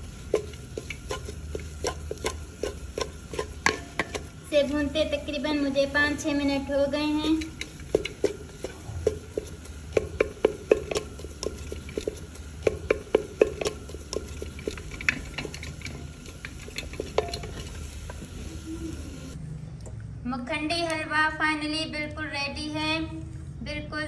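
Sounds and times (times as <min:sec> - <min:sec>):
wooden spatula knocking clay pot: 0:00.0 - 0:05.2, 0:06.1 - 0:18.3.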